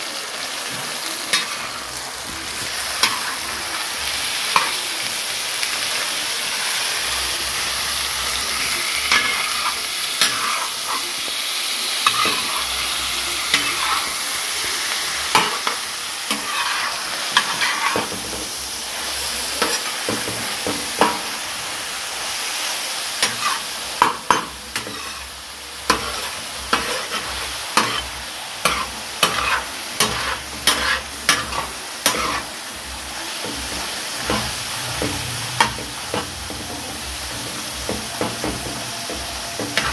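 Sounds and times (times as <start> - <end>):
meat sizzling in oil: 0.0 - 39.9
metal spatula scraping iron: 15.3 - 18.0.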